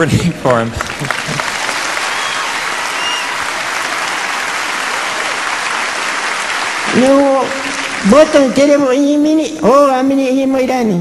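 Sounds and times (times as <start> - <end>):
audience applauding: 0.5 - 8.9.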